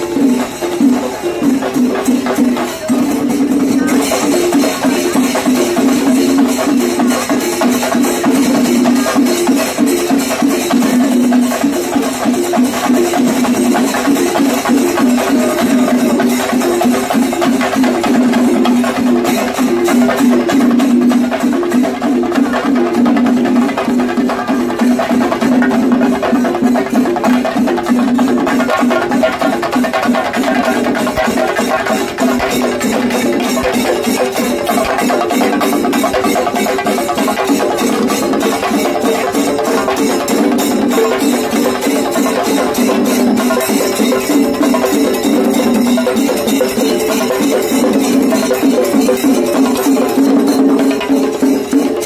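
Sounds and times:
fast group drumming: 0:00.0 - 0:52.0.

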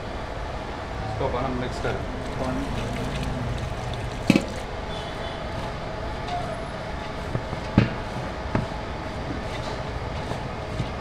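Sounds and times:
steady background hum: 0:00.0 - 0:11.0
hands squeezing wet cabbage in bowl: 0:02.1 - 0:04.7.

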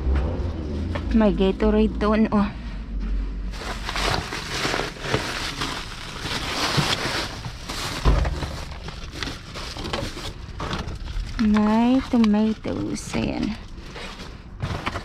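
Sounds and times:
plastic and cardboard rustling: 0:03.5 - 0:15.0.

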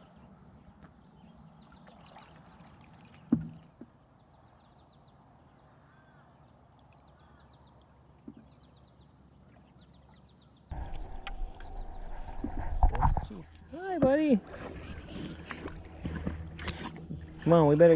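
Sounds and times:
canoe paddling on water: 0:01.8 - 0:04.4, 0:07.3 - 0:17.9.

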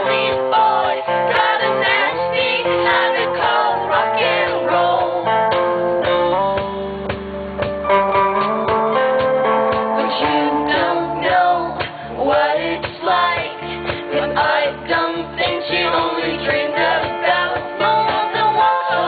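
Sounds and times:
rock guitar and beat: 0:00.0 - 0:19.0
woman singing: 0:10.0 - 0:19.0.

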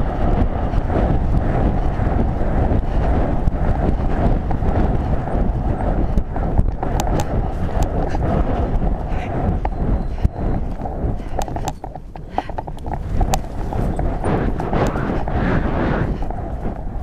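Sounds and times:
wind rumble on microphone: 0:00.0 - 0:17.0
sharp clicks: 0:06.2 - 0:08.3, 0:09.6 - 0:15.4
horse hoofbeats on grass: 0:09.7 - 0:17.0.

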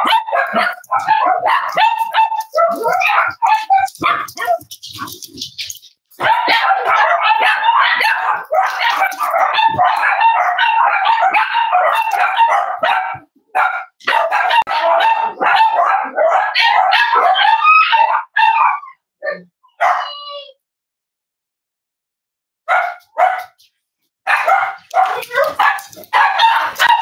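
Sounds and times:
dogs barking: 0:00.0 - 0:20.2, 0:22.7 - 0:23.6, 0:24.2 - 0:27.0.

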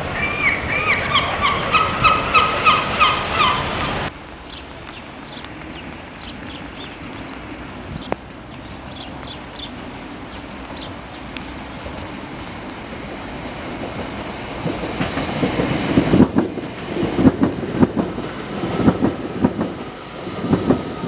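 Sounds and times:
bird calling loudly: 0:00.1 - 0:12.2.

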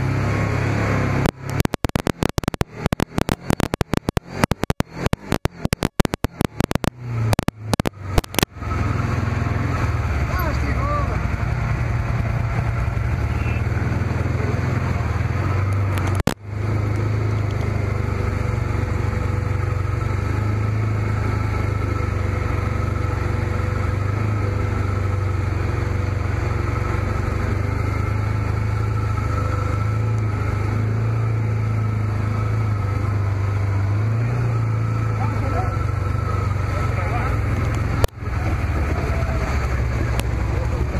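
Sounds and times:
off-road vehicle engine droning: 0:00.0 - 0:40.9
click: 0:01.2 - 0:08.5, 0:15.7 - 0:17.7, 0:40.1 - 0:40.3.

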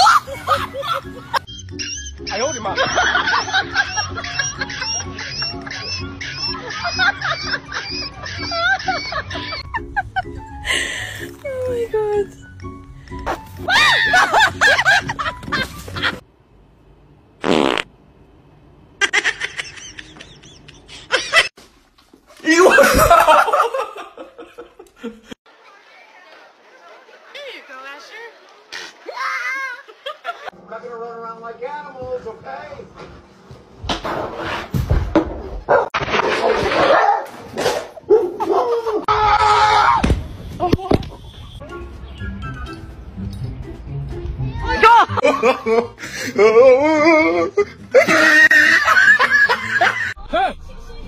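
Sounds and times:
buzzing fart sound: 0:17.4 - 0:17.9
dog barking and yelping: 0:35.7 - 0:38.7.

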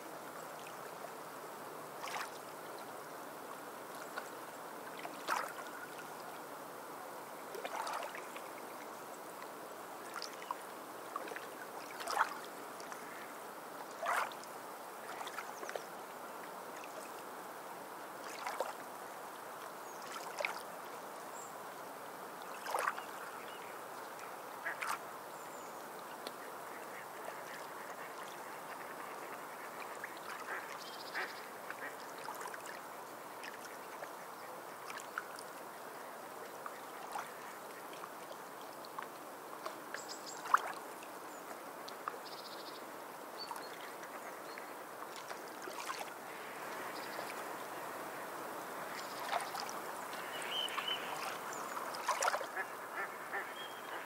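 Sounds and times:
sea birds quacking calls: 0:30.4 - 0:32.0, 0:52.0 - 0:54.0.

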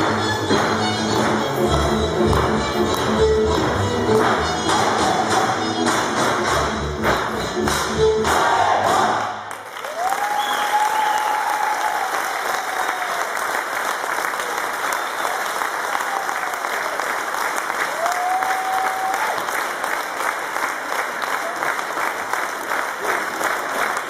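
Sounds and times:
folk dance music with tambourine: 0:00.0 - 0:09.2
audience applauding: 0:00.0 - 0:24.0.

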